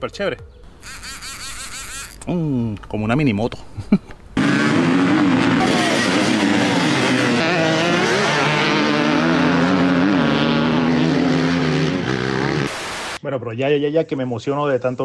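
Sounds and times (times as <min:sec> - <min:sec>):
dirt bikes revving: 0:04.4 - 0:13.2.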